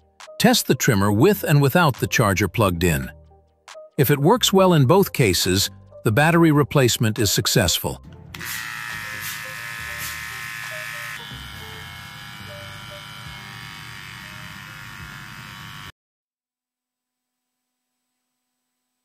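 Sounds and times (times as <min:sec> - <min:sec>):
beard trimmer buzzing: 0:08.3 - 0:16.0.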